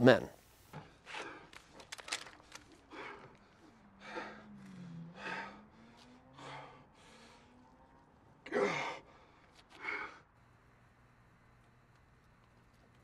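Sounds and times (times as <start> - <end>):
man breathing hard: 0.7 - 10.4.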